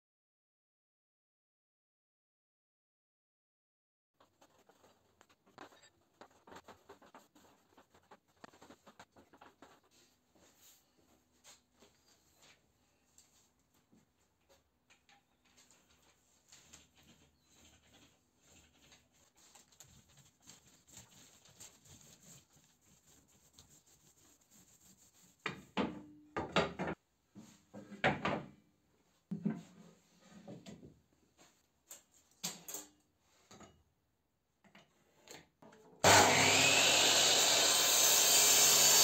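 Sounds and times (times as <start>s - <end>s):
paint roller rustling: 4.2s - 11.7s, 15.7s - 25.4s
electric miter saw running: 36.0s - 39.0s.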